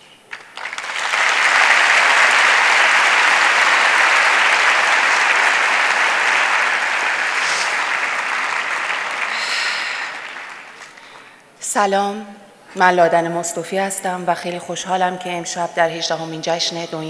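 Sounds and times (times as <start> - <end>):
audience applauding: 0.3 - 11.2.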